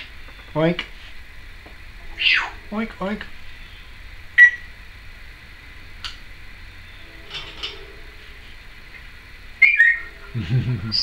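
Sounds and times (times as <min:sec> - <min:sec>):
parrot muttering: 0:01.9 - 0:03.7, 0:09.6 - 0:11.0
parrot beeping: 0:02.0 - 0:02.7, 0:04.4 - 0:04.7, 0:09.6 - 0:11.0.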